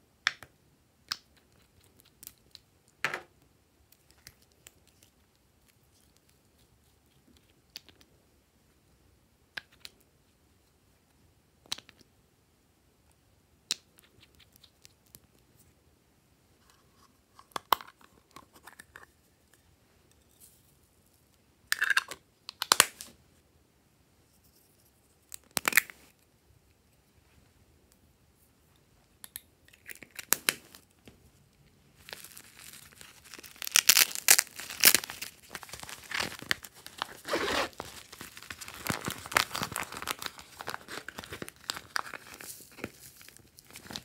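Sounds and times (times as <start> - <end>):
plastic crackling: 32.0 - 44.0.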